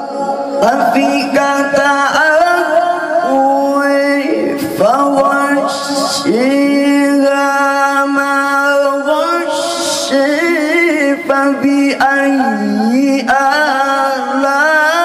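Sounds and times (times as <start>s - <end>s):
man chanting through microphone: 0.0s - 15.0s.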